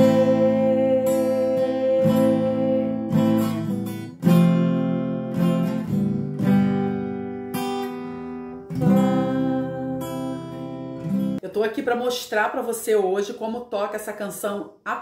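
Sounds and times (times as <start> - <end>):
acoustic guitar strummed slowly: 0.0 - 11.4.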